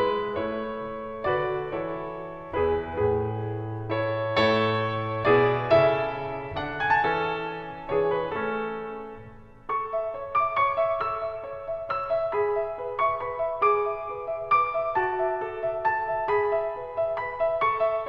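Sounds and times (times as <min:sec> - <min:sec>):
slow piano melody: 0:00.0 - 0:18.0.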